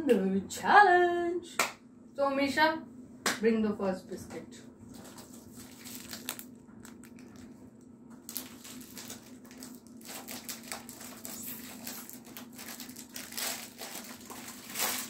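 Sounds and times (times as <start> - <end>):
plastic packet crinkling: 4.9 - 15.0.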